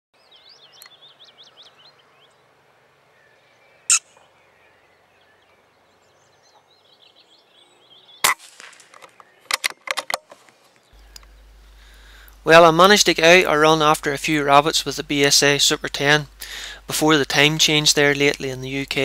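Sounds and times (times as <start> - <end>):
birds singing: 0.2 - 9.8, 10.4 - 19.0
sharp cracks: 8.2 - 11.3.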